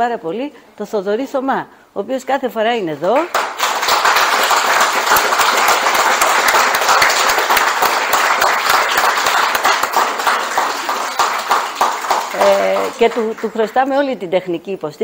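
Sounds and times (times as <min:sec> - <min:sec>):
audience applauding: 0:03.2 - 0:13.8.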